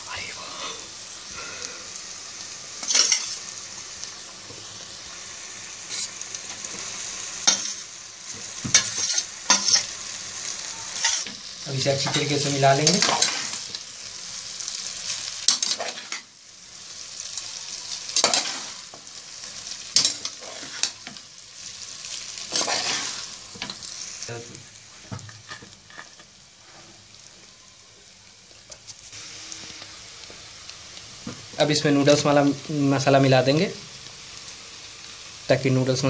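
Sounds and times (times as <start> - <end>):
food sizzling in oil: 0.0 - 36.0.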